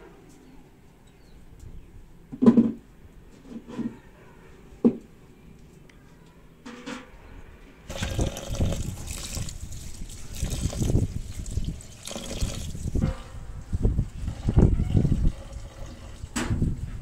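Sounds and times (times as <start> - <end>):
tap water running into bowl: 7.9 - 13.0.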